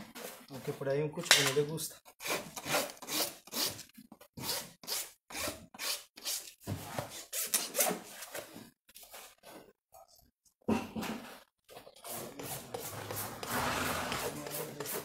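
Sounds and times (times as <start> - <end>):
rasp filing hoof: 12.0 - 15.0.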